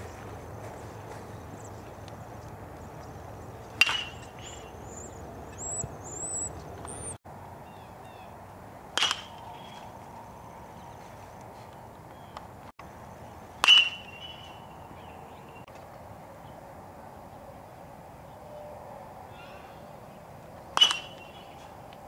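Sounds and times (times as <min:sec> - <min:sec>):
baseball bat cracking ball: 0:03.6 - 0:04.7, 0:08.9 - 0:09.6, 0:13.6 - 0:14.6, 0:20.8 - 0:21.4.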